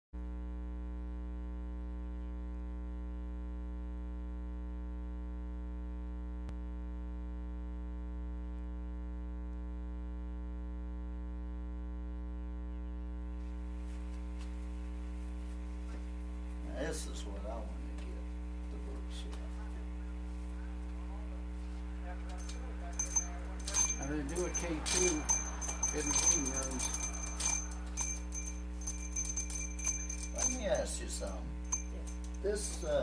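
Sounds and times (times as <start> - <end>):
electrical mains hum: 12.6 - 33.0.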